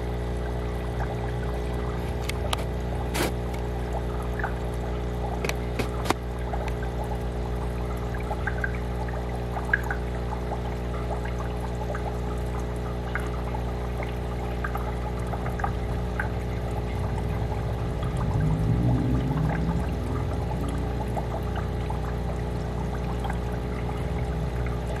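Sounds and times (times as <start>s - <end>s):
aquarium filter bubbling: 0.0s - 25.0s
steady low hum: 0.0s - 25.0s
low wavering sound: 16.9s - 21.8s.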